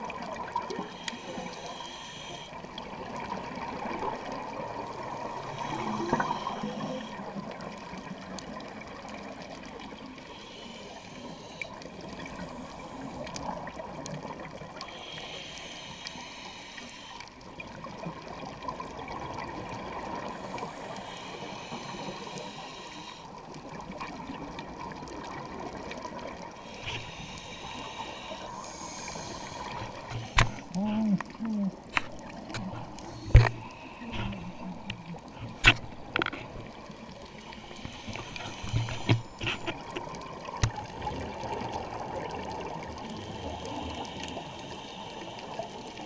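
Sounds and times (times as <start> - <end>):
regulator inhalation hiss: 0.8 - 2.6, 5.5 - 7.2, 10.2 - 13.3, 14.8 - 17.3, 20.2 - 23.4, 26.6 - 30.7, 37.3 - 39.6, 43.0 - 46.0.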